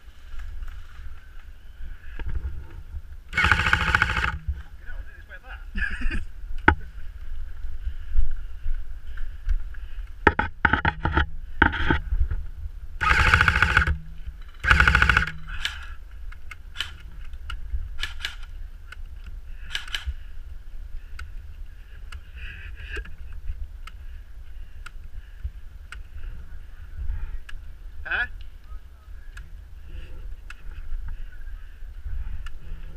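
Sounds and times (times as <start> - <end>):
muffled airsoft rifle bursts: 3.3 - 4.7, 13.0 - 16.0.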